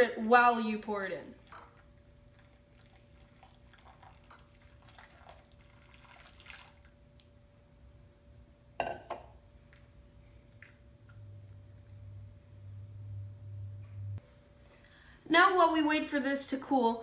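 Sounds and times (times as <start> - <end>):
water pouring into a bowl: 1.3 - 7.3.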